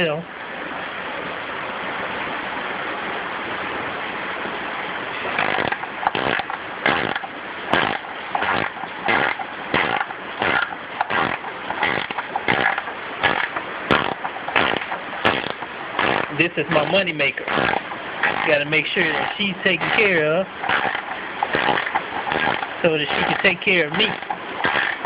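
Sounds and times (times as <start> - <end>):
rain hiss: 0.0 - 25.0
rasping strokes on mower deck: 5.2 - 25.0.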